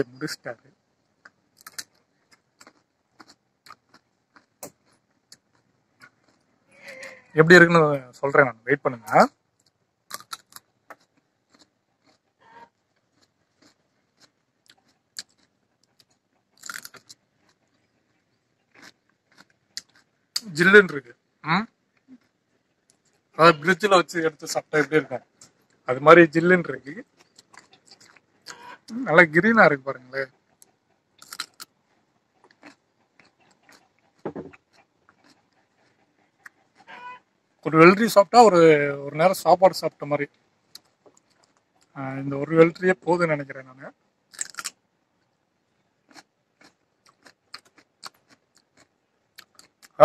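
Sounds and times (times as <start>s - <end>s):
quiet chewing: 0.6s - 7.4s, 9.1s - 23.8s, 24.6s - 25.9s, 26.7s - 37.7s, 40.2s - 42.8s, 43.9s - 50.0s
cucumber crunching: 1.2s - 7.2s, 9.2s - 21.0s, 21.9s - 25.9s, 26.7s - 29.8s, 31.2s - 37.0s, 44.3s - 45.3s, 46.0s - 50.0s.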